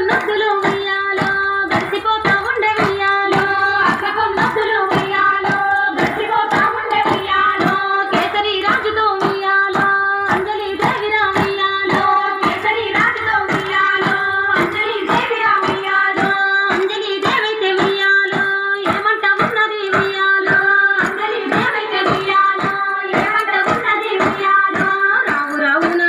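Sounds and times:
women clapping in unison: 0.0s - 26.0s
women singing folk song: 0.0s - 26.0s.

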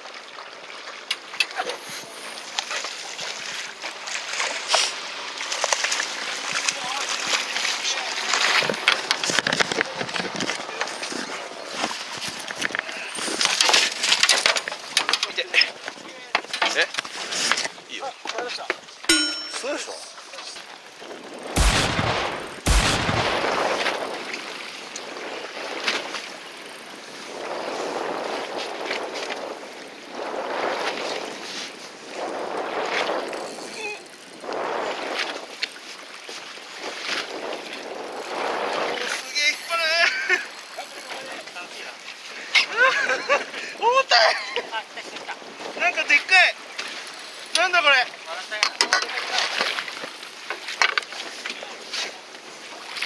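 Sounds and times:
water sloshing: 0.0s - 39.4s
sea and wind noise: 0.0s - 53.0s
splashing wash: 0.0s - 53.0s
waves slapping boat hull: 0.0s - 53.0s.

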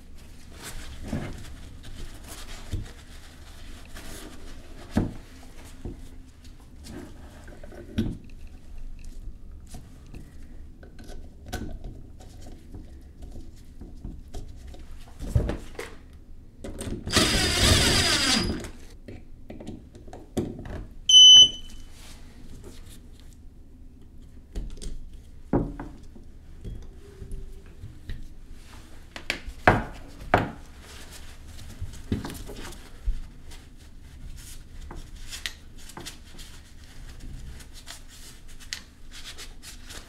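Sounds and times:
handheld power tool whirring: 17.1s - 18.8s
loud high-pitched beep: 21.1s - 21.8s.

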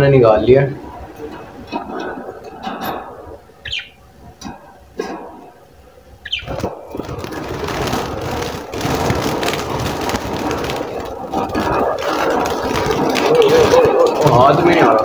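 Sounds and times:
budgies squawking: 0.2s - 15.0s
wings flapping against cage wire: 6.3s - 15.0s.

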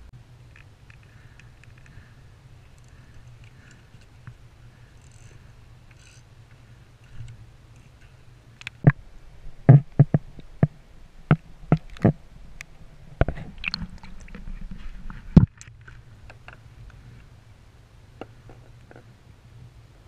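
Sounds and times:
sharp knocks and clicks: 9.7s - 12.2s.

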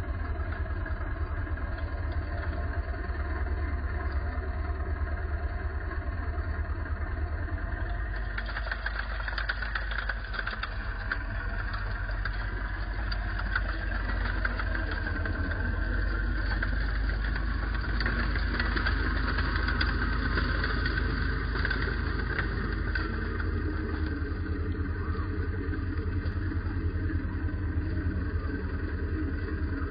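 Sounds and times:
engine idling: 0.0s - 29.9s
dense clattering rattle: 7.2s - 29.9s.

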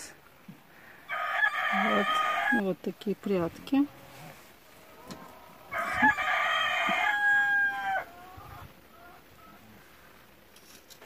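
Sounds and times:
rooster crowing: 1.1s - 2.6s, 5.0s - 9.6s.

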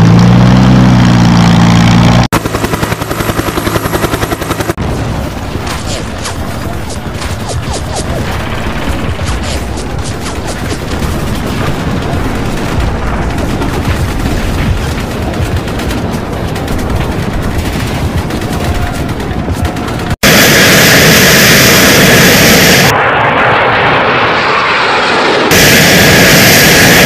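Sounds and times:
jet engine noise: 1.0s - 27.0s
explosions: 4.8s - 27.0s
rifle and machine-gun fire: 8.1s - 20.4s.

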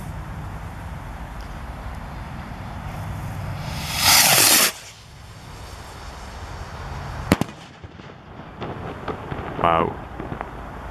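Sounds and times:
skyrocket launching whoosh: 3.4s - 5.1s
rocket bursting bang: 3.6s - 5.0s, 7.3s - 10.6s.

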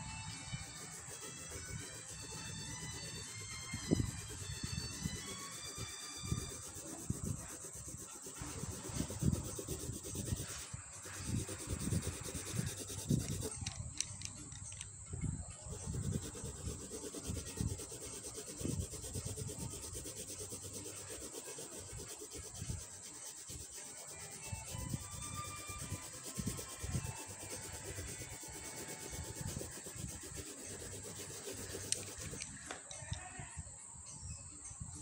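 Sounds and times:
pencil scratching on paper: 0.0s - 13.7s, 15.5s - 32.6s.

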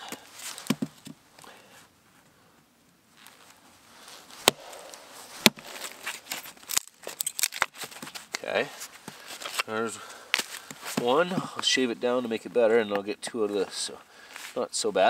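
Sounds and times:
axe chopping firewood: 4.4s - 7.7s.

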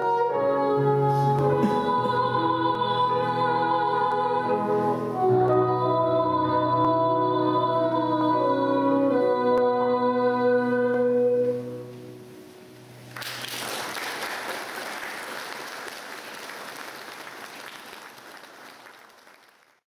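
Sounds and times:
bassoon: 0.0s - 12.4s
soprano singing: 0.0s - 12.5s
piano: 0.0s - 15.2s
audience applause: 13.1s - 19.8s.

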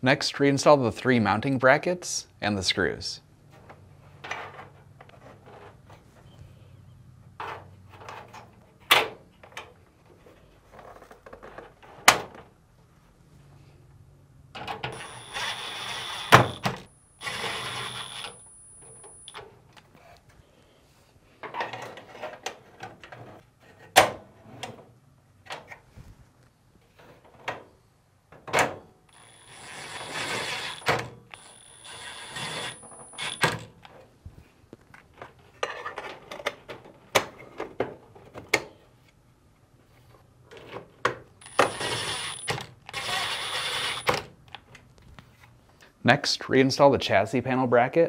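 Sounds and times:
cordless driver driving screws: 14.9s - 18.4s, 29.1s - 33.7s, 41.4s - 44.2s.

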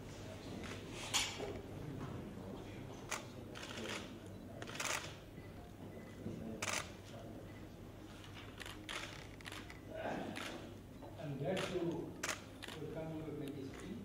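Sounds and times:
camera shutters clicking: 3.1s - 5.2s, 6.6s - 7.0s, 8.6s - 9.8s, 10.4s - 10.6s, 11.6s - 13.9s.

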